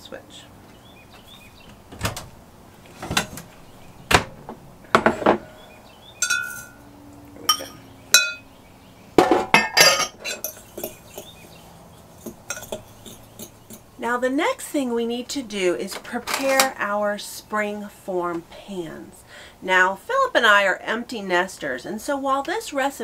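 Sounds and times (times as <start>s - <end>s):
metal spoon clinking on glass bowl: 6.2s - 6.8s, 7.5s - 8.4s, 9.6s - 11.3s, 12.2s - 13.8s.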